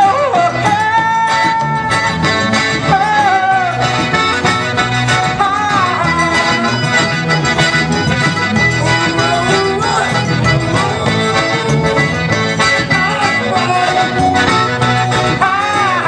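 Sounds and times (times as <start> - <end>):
electric bass guitar: 0.0 - 16.0
piano accordion melody: 0.0 - 16.0.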